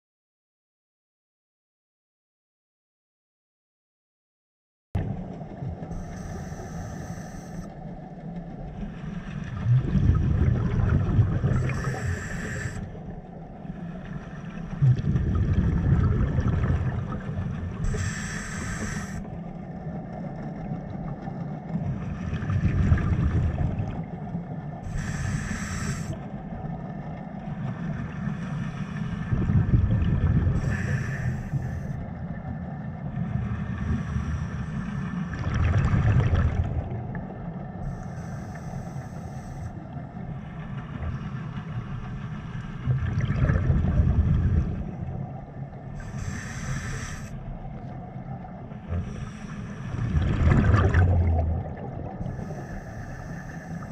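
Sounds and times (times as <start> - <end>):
regulator hissing inhalation: 6.0 - 7.7, 11.6 - 12.9, 17.8 - 19.3, 24.9 - 26.2, 30.6 - 32.0, 37.9 - 39.8, 46.0 - 47.4, 49.0 - 50.1, 52.2 - 53.9
exhaled bubbles rushing: 9.2 - 18.2, 19.7 - 25.1, 29.3 - 30.8, 35.3 - 38.0, 42.7 - 52.8.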